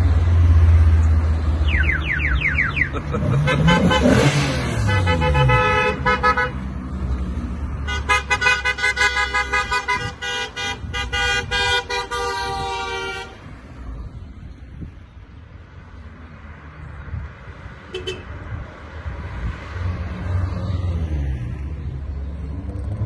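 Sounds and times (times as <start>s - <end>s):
car engine passing: 0.0s - 9.3s, 15.8s - 23.0s
car horns honking: 1.7s - 6.7s, 7.8s - 13.5s, 17.9s - 18.4s.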